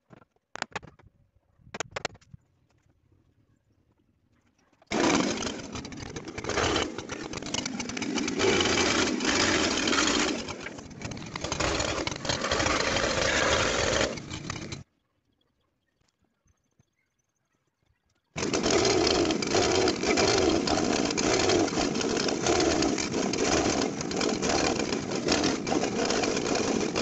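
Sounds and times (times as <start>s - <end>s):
small petrol engine running: 4.9s - 14.9s, 18.4s - 27.0s.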